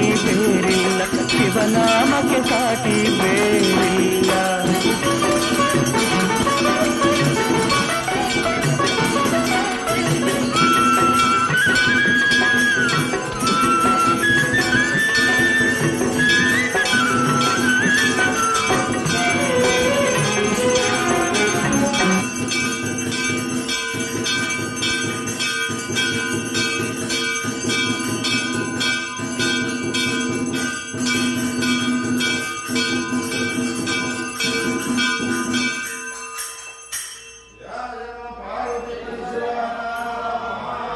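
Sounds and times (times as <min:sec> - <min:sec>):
person singing devotional melody: 0:00.0 - 0:22.6
temple bells ringing: 0:00.0 - 0:40.2.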